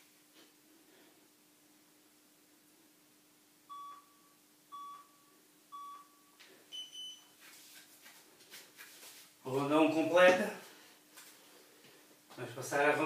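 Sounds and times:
faint steady hum: 0.0s - 13.0s
short timer beeps: 3.7s - 5.2s.

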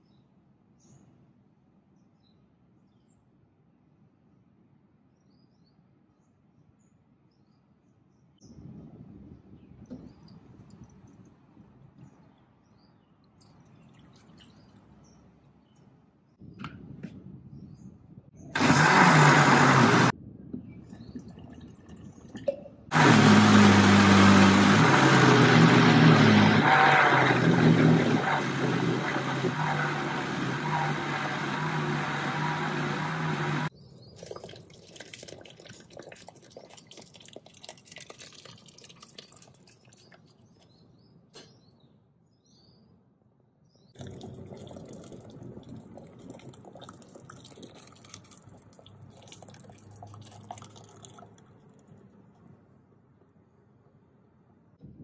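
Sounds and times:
blender grinding: 18.6s - 20.1s, 22.9s - 33.7s
liquid pouring into pot: 34.2s - 40.3s, 44.0s - 51.8s.

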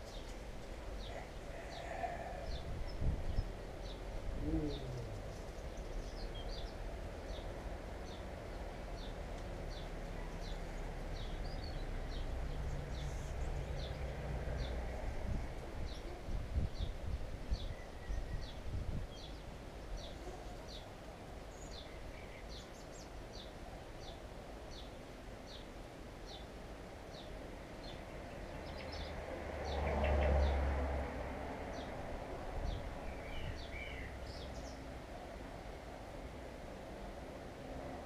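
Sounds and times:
vehicle passing with low rumble: 0.0s - 16.8s, 28.1s - 35.1s.

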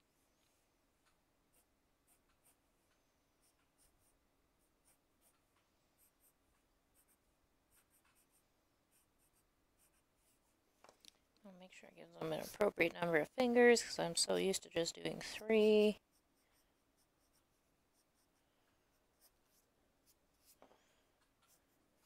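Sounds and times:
pencil scratching on paper: 1.5s - 2.7s, 3.4s - 10.6s, 12.1s - 20.6s, 21.4s - 22.0s.

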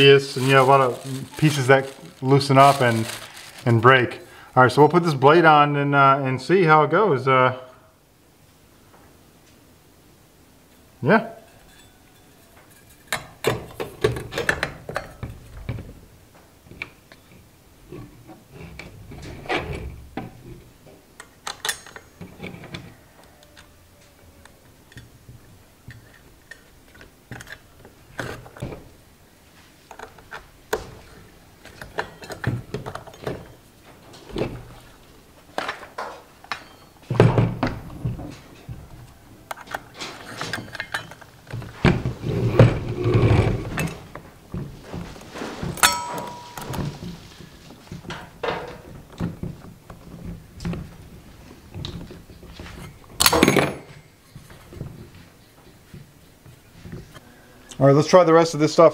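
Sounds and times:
knocking and rattling: 43.7s - 51.1s
metal clicks and clinks: 45.8s - 46.8s.

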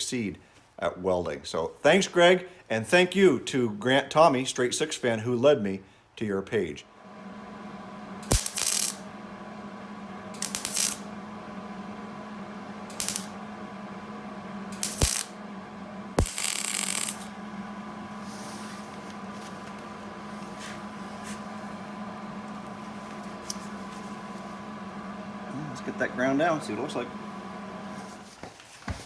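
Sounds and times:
steady low hum: 6.8s - 28.4s
welder arc crackling: 7.0s - 28.4s.

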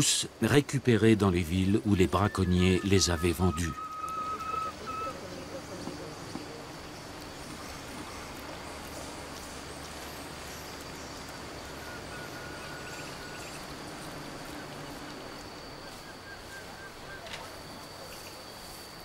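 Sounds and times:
high insect drone: 0.0s - 19.0s
birds chirping: 0.3s - 19.0s
thin bird whistle: 2.1s - 5.2s, 11.0s - 14.7s, 15.4s - 19.0s.

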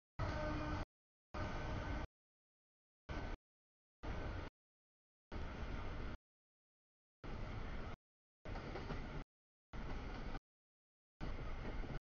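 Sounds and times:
freight train wheels rumbling on rails: 7.3s - 9.2s, 9.8s - 10.4s, 11.2s - 12.0s.

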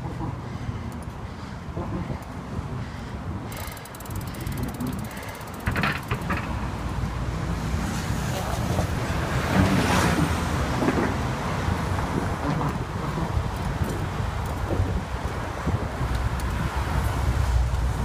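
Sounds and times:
car traffic passing: 0.0s - 18.0s
wind on microphone: 1.7s - 18.0s
bicycle freewheel clicking: 3.5s - 7.1s.

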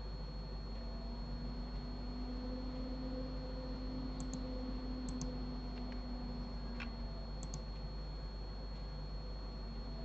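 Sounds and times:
low electrical hum: 0.0s - 10.0s
mouse and keyboard clicks: 5.0s - 5.3s, 6.8s - 7.7s.

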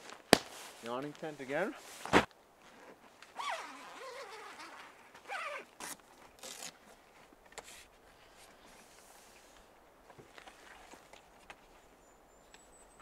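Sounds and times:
tent fabric scraping and rustling: 0.0s - 9.6s.

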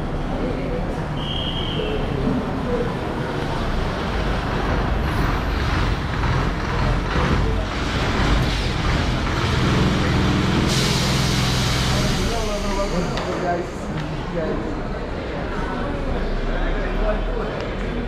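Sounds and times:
road and air noise: 0.0s - 18.0s
bus diesel engine running: 2.0s - 16.6s
hissing rush: 10.4s - 13.6s.

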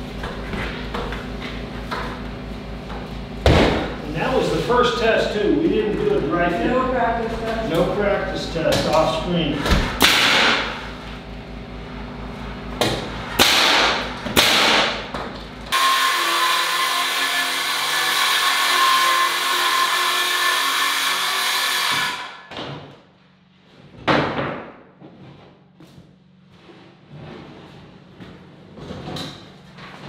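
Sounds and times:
nail gun firing: 10.0s - 10.7s, 13.4s - 15.0s
circular saw cutting wood: 15.7s - 22.5s.

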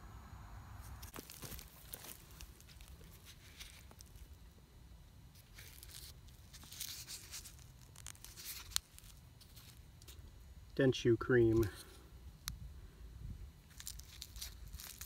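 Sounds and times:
metal tube crinkling: 0.8s - 4.5s, 5.3s - 10.3s, 13.7s - 15.0s.

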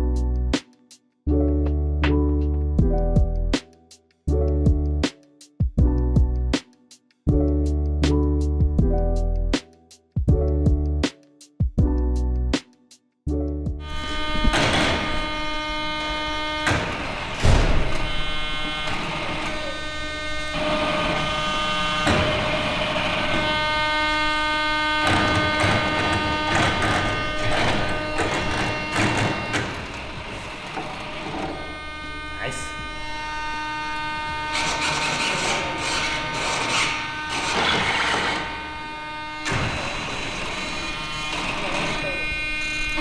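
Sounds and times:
servos buzzing and whining: 13.8s - 43.0s.

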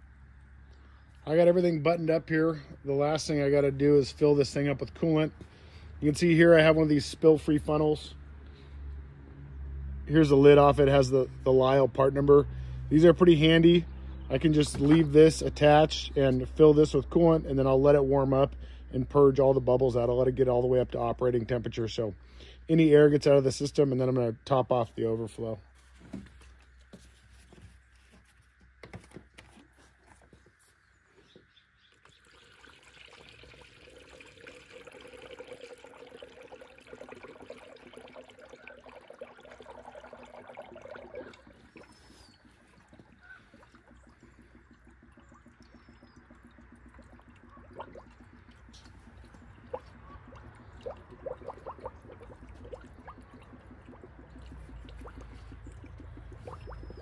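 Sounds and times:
liquid trickling: 10.2s - 24.1s, 31.2s - 57.0s
liquid pouring into funnel: 31.9s - 57.0s.

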